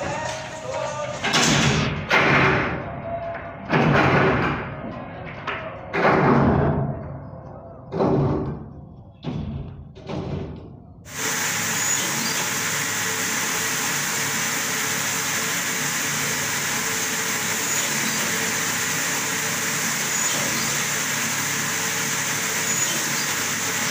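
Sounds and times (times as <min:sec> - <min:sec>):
press machine running: 0:11.1 - 0:23.9.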